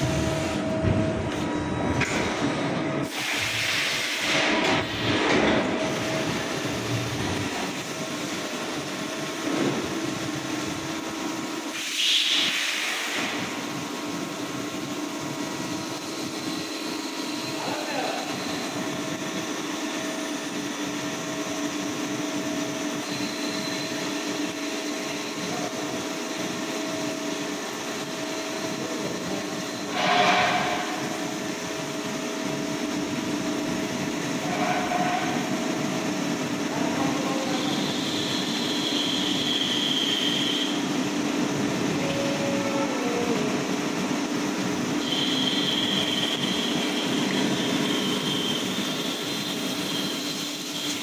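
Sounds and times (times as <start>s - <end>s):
machining center cutting steel: 0.0s - 32.8s, 33.9s - 51.0s
coolant spraying: 11.6s - 19.1s, 35.6s - 51.0s.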